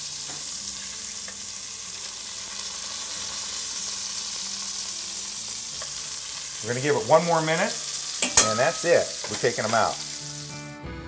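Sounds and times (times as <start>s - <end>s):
meat sizzling in butter: 0.0s - 10.8s.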